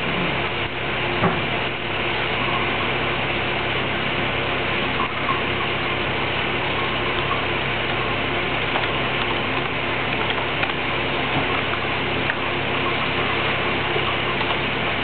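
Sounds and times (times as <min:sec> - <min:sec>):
machinery humming and hissing: 0:00.0 - 0:15.0
click: 0:08.7 - 0:10.8.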